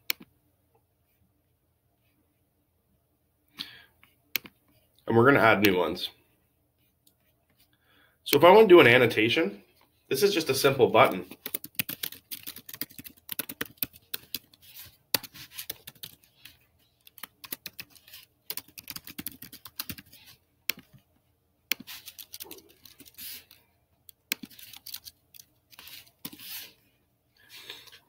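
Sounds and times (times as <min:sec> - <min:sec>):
keyboard typing: 0:11.0 - 0:21.0, 0:21.7 - 0:26.6.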